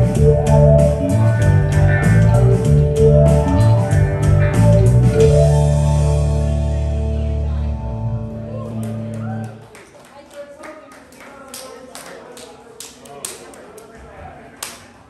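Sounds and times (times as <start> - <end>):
live band music: 0.0 - 9.6.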